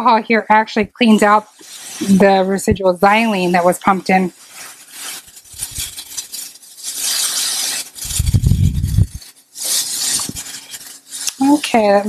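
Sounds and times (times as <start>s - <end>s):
low rumbling: 8.0s - 9.2s.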